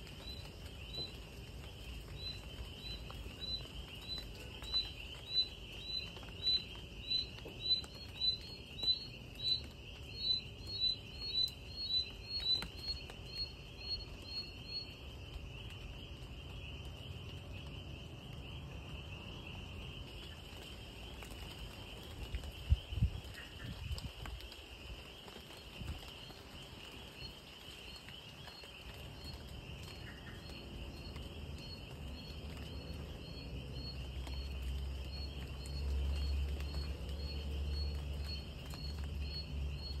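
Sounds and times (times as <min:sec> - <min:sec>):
insect chorus: 0:00.0 - 0:40.0
light rain pattering: 0:00.0 - 0:40.0
repeated chirping call: 0:02.2 - 0:14.9.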